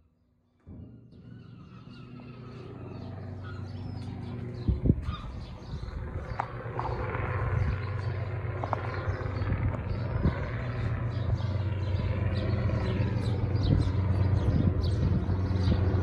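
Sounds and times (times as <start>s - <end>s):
low engine-like drone: 0.0s - 16.0s
high bird chirps: 1.0s - 8.0s.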